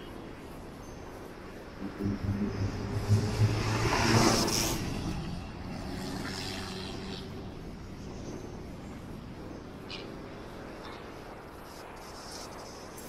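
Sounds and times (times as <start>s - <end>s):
traffic hum: 0.0s - 13.0s
vehicle passing: 1.8s - 8.0s.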